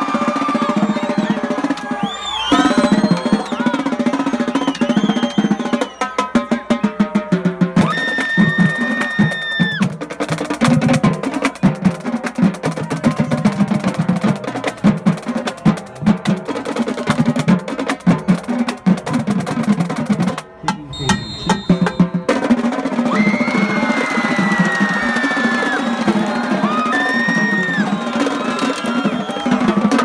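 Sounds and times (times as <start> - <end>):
marching drumline playing: 0.0 - 30.0
long whistle: 0.5 - 3.8, 4.4 - 6.3, 20.9 - 22.1, 23.1 - 29.8
long high tone: 20.7 - 22.1.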